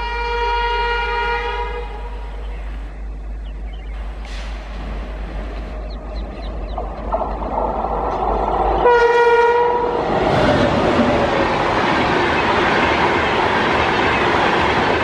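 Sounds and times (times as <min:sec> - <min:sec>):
train horn blast: 0:00.0 - 0:02.4, 0:08.8 - 0:10.0
electric locomotive whine: 0:00.0 - 0:15.0
wheels clattering on rails: 0:03.6 - 0:15.0.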